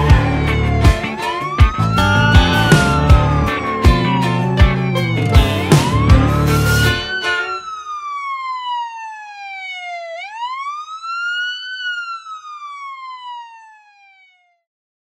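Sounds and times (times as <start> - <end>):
siren wail: 0.0 - 14.7.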